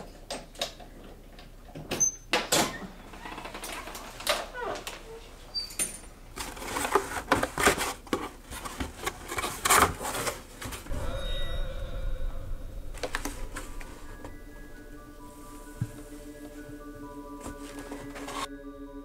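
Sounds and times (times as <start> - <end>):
objects clattering: 5.8 - 11.0, 12.9 - 18.5
held music notes: 10.9 - 19.0.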